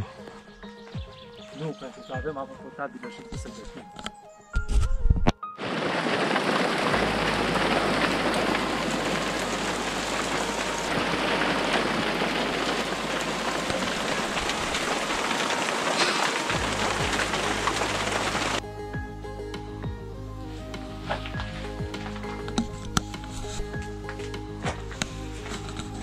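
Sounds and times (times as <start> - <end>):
heavy rain pouring: 5.6 - 18.6, 20.6 - 26.0.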